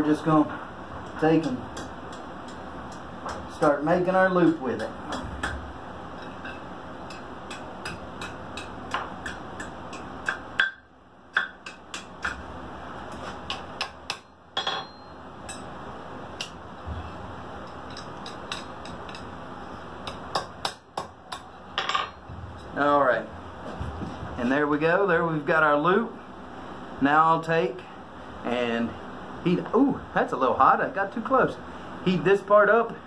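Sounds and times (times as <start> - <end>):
hammer striking steel on anvil: 6.5 - 12.4, 13.5 - 15.7.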